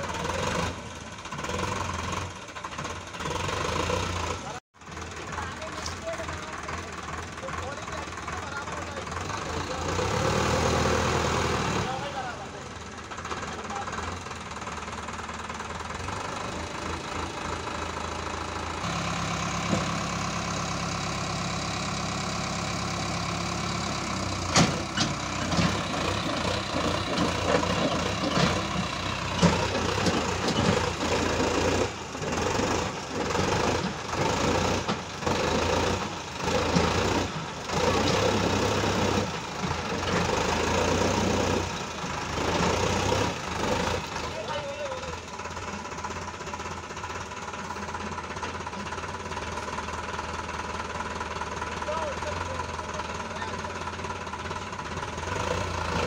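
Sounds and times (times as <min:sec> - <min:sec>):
tractor diesel engine running: 0:00.0 - 0:56.0
soil tipping rumble: 0:23.8 - 0:44.4.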